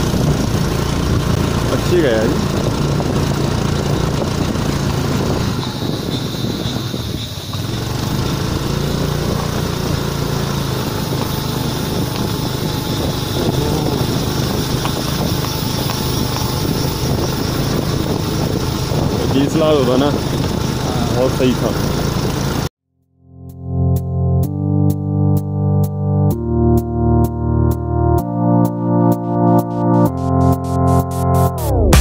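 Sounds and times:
road noise: 0.0s - 22.7s
scooter engine running: 0.0s - 22.7s
wind noise: 0.0s - 22.7s.

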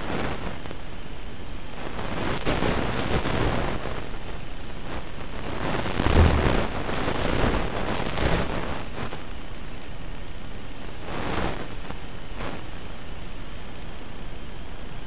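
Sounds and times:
wind rushing: 5.9s - 6.9s
drone motor: 6.0s - 6.7s.

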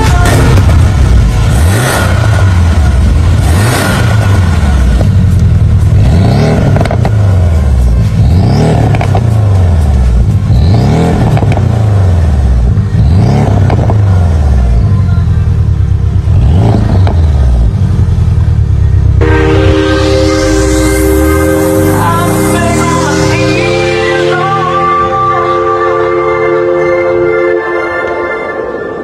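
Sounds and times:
car engine revving: 0.0s - 27.3s
exhaust pops: 0.1s - 12.0s, 13.2s - 14.6s, 16.2s - 19.2s.

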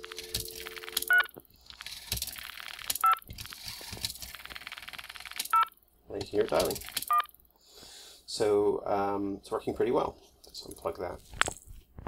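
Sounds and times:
dial tone: 0.0s - 1.3s.

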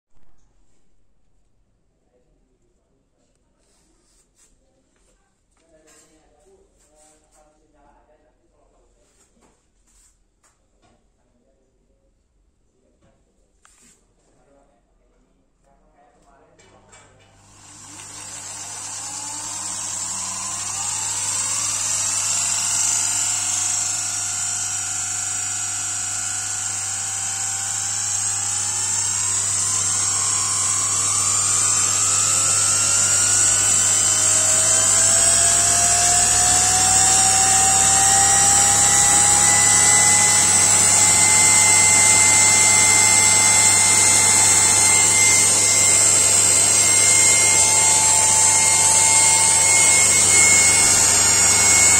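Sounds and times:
electric motor whine: 17.4s - 51.9s.

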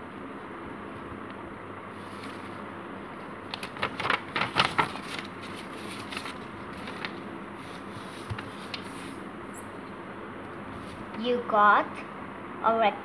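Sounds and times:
paper rustling and crinkling: 1.9s - 2.6s, 3.2s - 9.3s.

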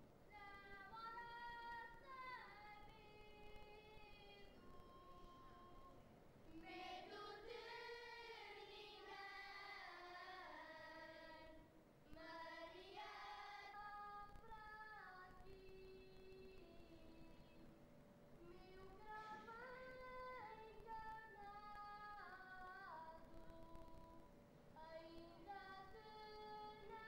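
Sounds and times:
children's choir singing unaccompanied: 0.3s - 17.6s.

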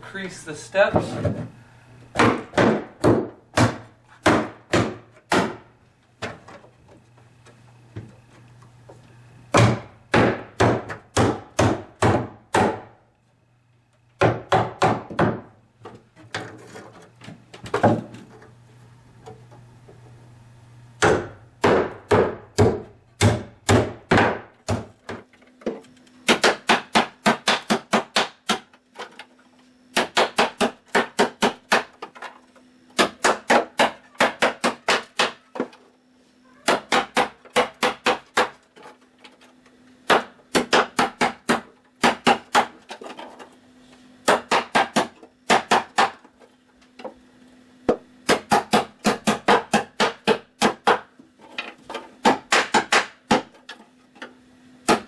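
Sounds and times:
hammer striking nails into wood: 2.1s - 5.6s, 9.5s - 13.0s, 14.2s - 15.5s, 21.0s - 25.2s, 26.2s - 28.8s, 29.9s - 32.1s, 33.0s - 35.4s, 36.7s - 38.6s, 40.1s - 42.8s, 44.2s - 46.2s, 47.9s - 51.1s, 52.2s - 53.6s.

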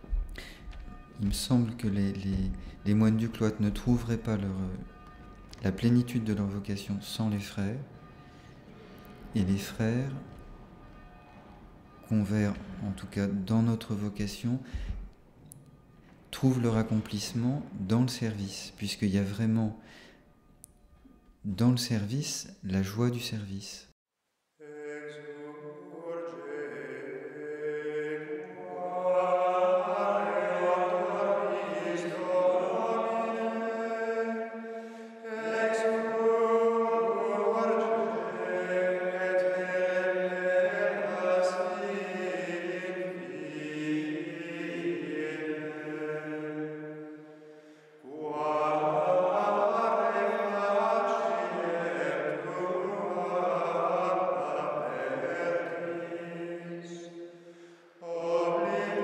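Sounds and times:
singers breathing: 0.3s - 0.8s, 8.1s - 9.3s, 14.6s - 15.2s, 19.8s - 20.4s, 34.7s - 35.2s, 47.1s - 48.1s, 57.2s - 58.0s
men chanting plainchant: 24.6s - 59.0s.

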